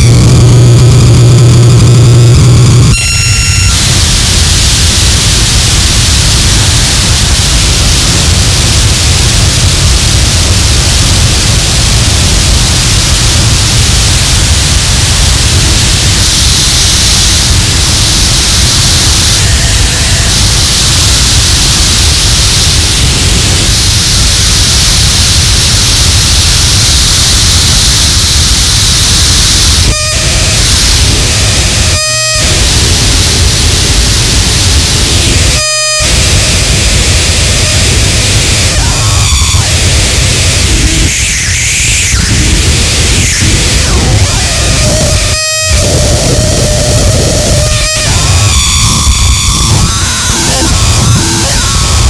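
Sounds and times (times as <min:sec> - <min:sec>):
distorted static noise: 0:00.0 - 0:52.0
heavy low rumble: 0:00.0 - 0:52.0
high whistling tones: 0:02.9 - 0:03.8.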